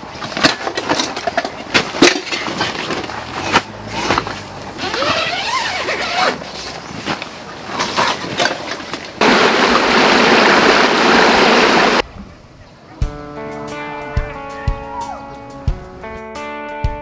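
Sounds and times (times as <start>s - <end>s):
bag and gear handling: 0.0s - 9.2s
stream running over rocks: 7.2s - 12.1s.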